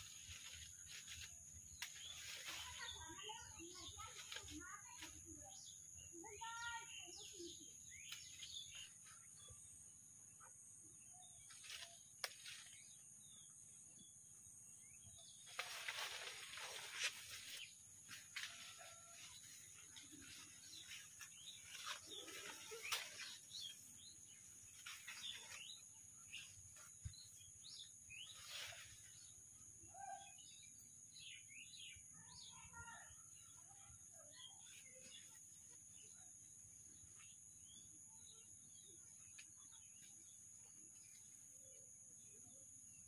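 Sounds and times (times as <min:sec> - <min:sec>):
bushes rustling: 0:00.0 - 0:05.6, 0:11.4 - 0:13.2, 0:15.2 - 0:29.5
faint birds chirping: 0:00.0 - 0:43.0.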